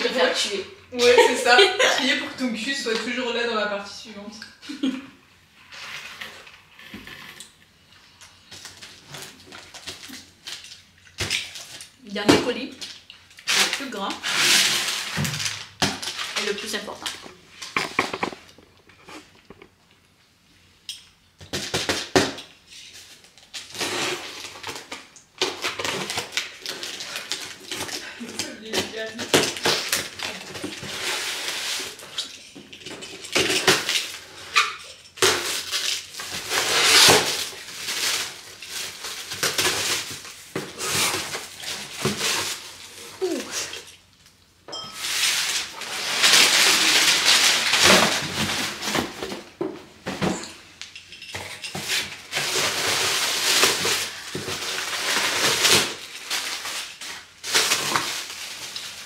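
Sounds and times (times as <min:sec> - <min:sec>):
plastic and paper crinkling: 0:08.0 - 0:19.8, 0:21.5 - 0:44.4, 0:45.0 - 0:49.6, 0:51.7 - 0:59.0
items knocking and clinking: 0:15.1 - 0:19.8, 0:47.7 - 0:52.8.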